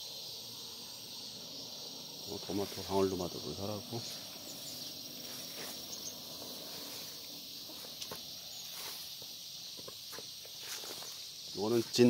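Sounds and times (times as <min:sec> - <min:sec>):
insects chirring: 0:00.0 - 0:12.0
footsteps through grass: 0:03.9 - 0:12.0.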